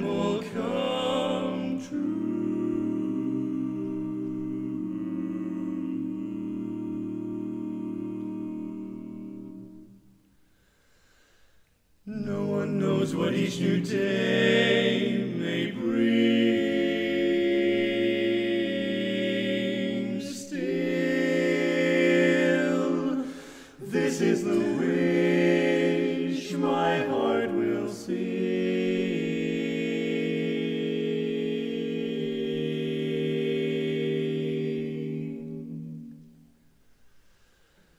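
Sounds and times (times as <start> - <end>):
quartet singing in close harmony: 0.0 - 10.1, 12.1 - 36.3
singers breathing: 10.3 - 11.8, 23.2 - 23.8, 36.8 - 37.9.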